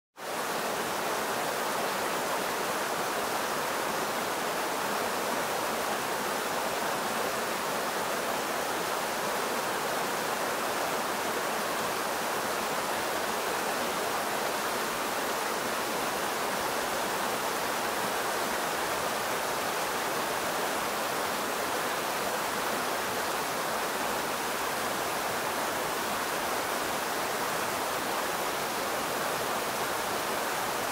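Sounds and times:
creek rushing over rocks: 0.2 - 30.9.

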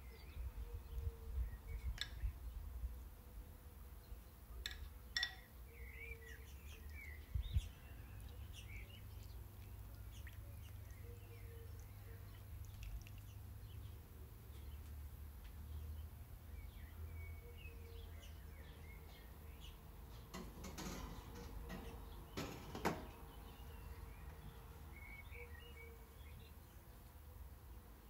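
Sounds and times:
birds chirping: 4.0 - 28.0
sharp clicks and knocks: 4.6 - 5.5, 20.1 - 23.2.

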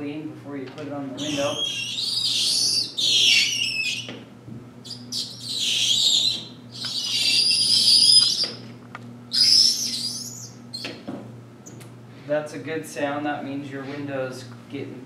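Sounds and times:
squeegee squeaking on wet glass: 1.2 - 4.1, 4.8 - 8.6, 9.3 - 10.9.

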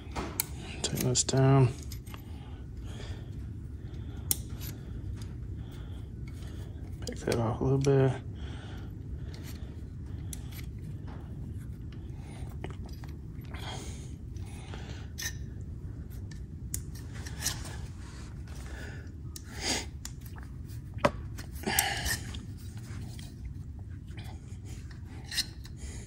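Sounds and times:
steady low hum: 0.0 - 26.0
metal tool clicks and scrapes: 0.4 - 2.2, 10.2 - 10.8, 24.8 - 25.8.

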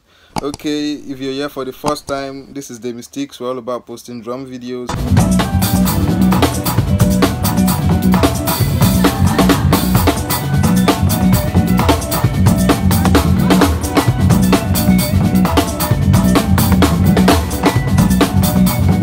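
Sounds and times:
fast drum kit playing: 4.9 - 19.0.

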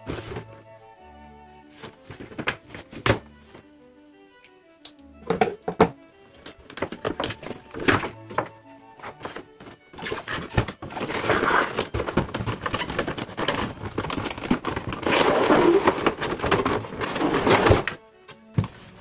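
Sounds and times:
plastic packaging crinkling: 10.0 - 17.9.

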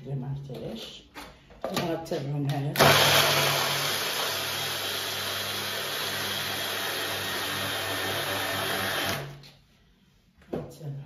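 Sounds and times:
food processor grinding: 2.8 - 9.4.

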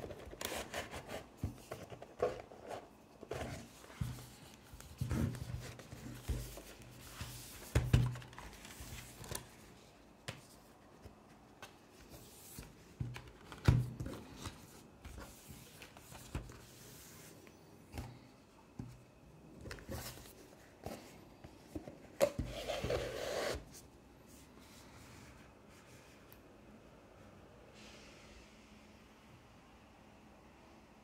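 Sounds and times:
cardboard sliding rustle: 0.0 - 9.8, 22.4 - 23.8.

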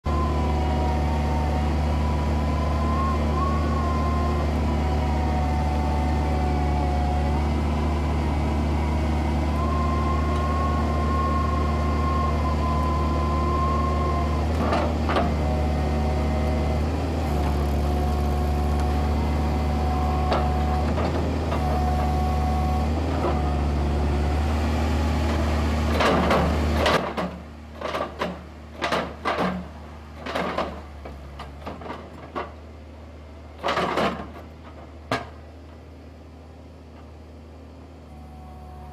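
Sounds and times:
diesel engine under load: 0.0 - 38.9
hydraulic whine: 0.1 - 27.0
metal clunks and knocks: 26.0 - 32.6, 33.6 - 35.4.

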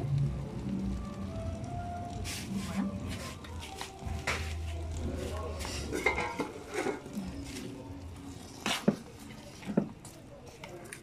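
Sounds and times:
metal spoon scraping a pot: 5.2 - 9.8.

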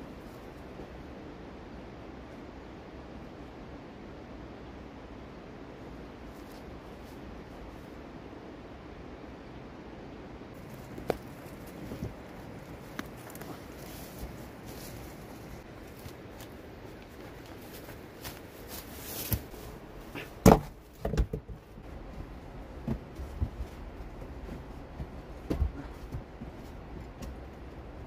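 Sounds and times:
rocks knocking and thudding: 10.7 - 12.3, 20.2 - 27.5.

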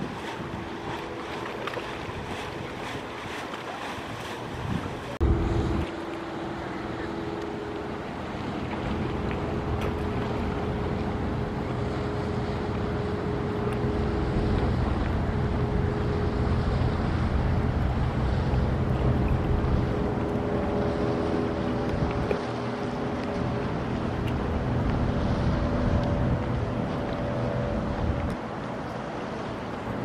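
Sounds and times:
wind on microphone: 0.0 - 7.2, 7.9 - 30.0
lapping water: 0.0 - 16.2
motorboat engine droning: 0.0 - 30.0.

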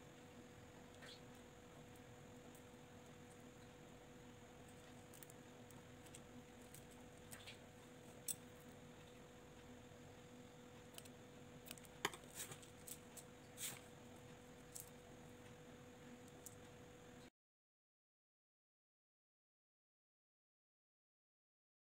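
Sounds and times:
faint hum: 0.0 - 17.3.

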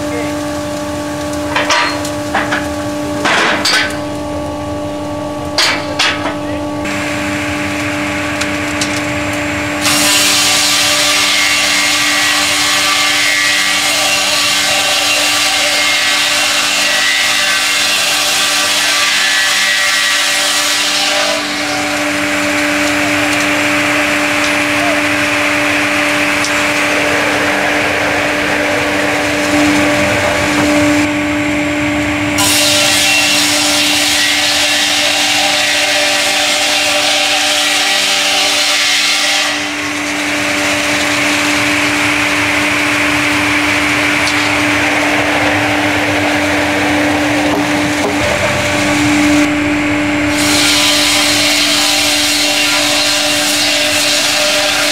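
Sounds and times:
sawmill motors humming: 0.0 - 54.9
saw blades cutting log: 32.4 - 49.5, 50.3 - 54.9.

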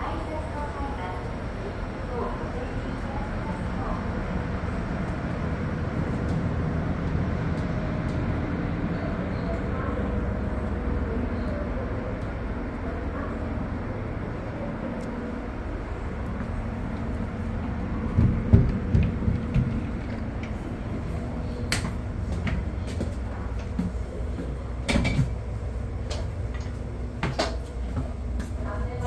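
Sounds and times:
stationary train humming: 0.0 - 29.0
gangway doors clicking and knocking: 18.0 - 20.5.

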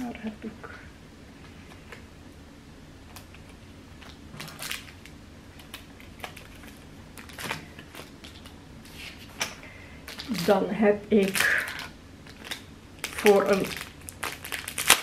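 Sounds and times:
faint steady hum: 0.0 - 15.0
plastic wrapping crinkling: 3.1 - 15.0.

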